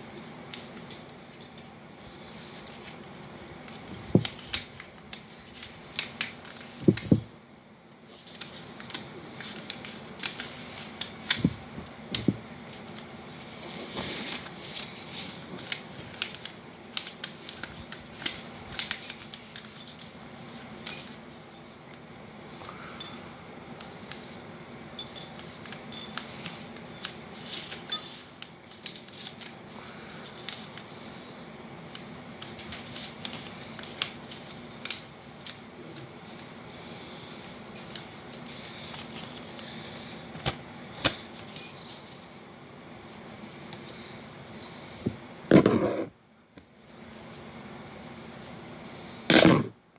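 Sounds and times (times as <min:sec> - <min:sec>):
paper rustling and crinkling: 0:08.1 - 0:20.8, 0:25.4 - 0:31.2, 0:31.8 - 0:36.6.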